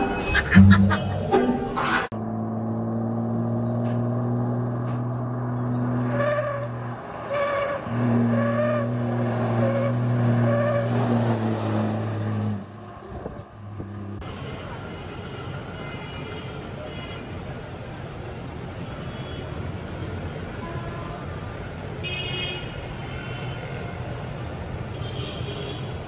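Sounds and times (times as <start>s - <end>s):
truck low drone: 0.0s - 14.2s.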